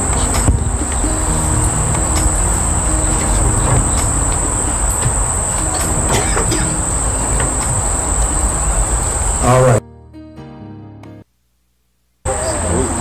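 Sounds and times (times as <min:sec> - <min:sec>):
high-pitched insect drone: 0:00.0 - 0:09.8
low rumble: 0:00.0 - 0:09.8.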